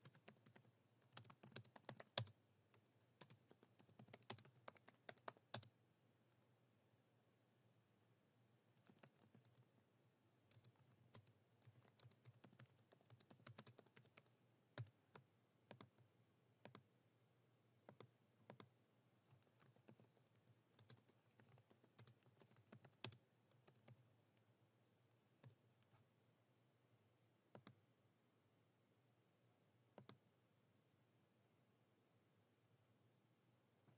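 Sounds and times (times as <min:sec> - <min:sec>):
keyboard typing: 0:00.0 - 0:05.7, 0:08.8 - 0:09.7, 0:10.5 - 0:16.0, 0:16.6 - 0:16.8, 0:17.9 - 0:24.1, 0:27.5 - 0:27.8, 0:30.0 - 0:30.2
mouse clicks: 0:27.5 - 0:27.8, 0:29.9 - 0:30.2.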